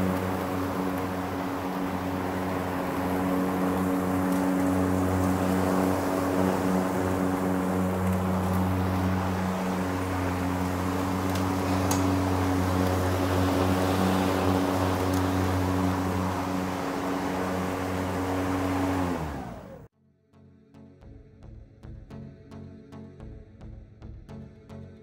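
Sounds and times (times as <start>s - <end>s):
electric lawn mower running: 0.0s - 19.9s.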